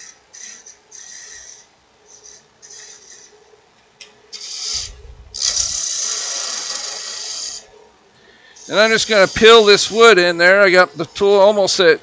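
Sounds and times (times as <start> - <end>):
lathe humming: 4.9 - 12.0
lathe tool hissing cuts on wood: 8.6 - 11.3.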